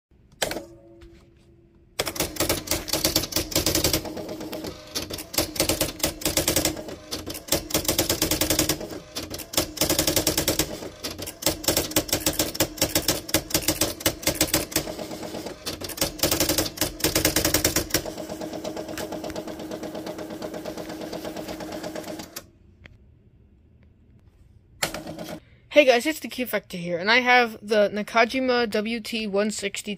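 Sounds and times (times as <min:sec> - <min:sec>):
daisy-wheel typewriter strikes: 0:02.0 - 0:22.4
typewriter motor hum: 0:02.0 - 0:22.5.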